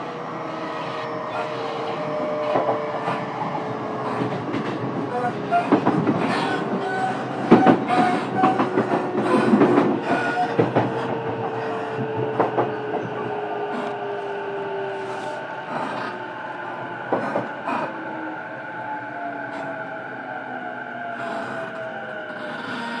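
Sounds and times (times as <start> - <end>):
traction motor whine: 0.0 - 23.0
train rumble: 0.0 - 23.0
train wheels knocking over rail joints: 4.0 - 14.0
wheel squeals: 5.1 - 14.0.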